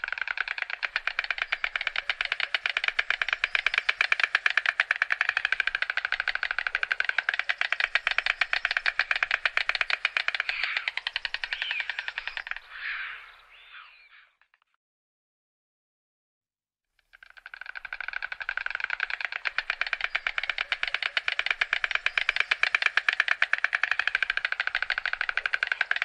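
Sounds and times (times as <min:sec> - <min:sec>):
stork bill clattering: 0:00.0 - 0:12.7, 0:17.1 - 0:26.0.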